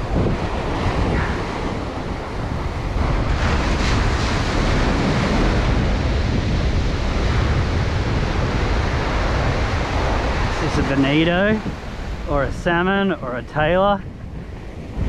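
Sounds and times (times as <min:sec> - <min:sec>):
ocean surf breaking: 0:00.0 - 0:15.0
wind buffeting microphone: 0:00.0 - 0:15.0.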